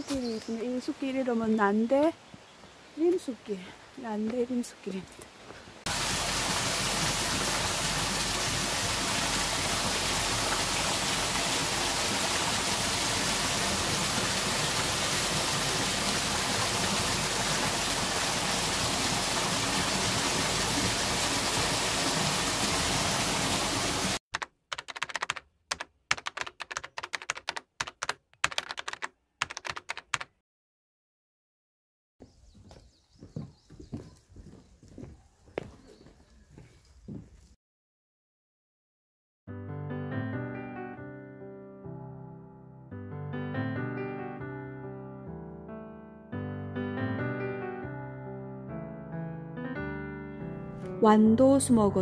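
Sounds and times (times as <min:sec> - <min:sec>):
quick irregular clicks and taps: 0:24.4 - 0:30.3.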